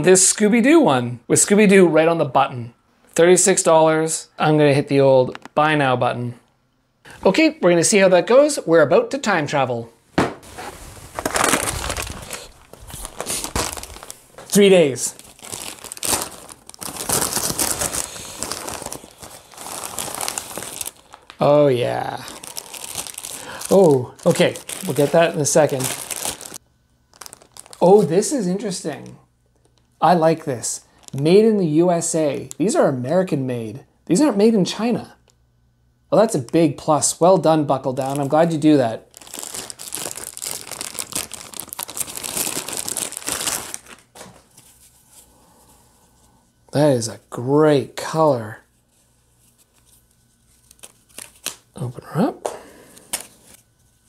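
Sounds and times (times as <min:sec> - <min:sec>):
paper and plastic crinkling: 0:10.5 - 0:28.2, 0:30.8 - 0:31.3, 0:38.0 - 0:45.2, 0:48.8 - 0:51.7
paper mailer tearing: 0:11.2 - 0:21.5, 0:22.3 - 0:26.6.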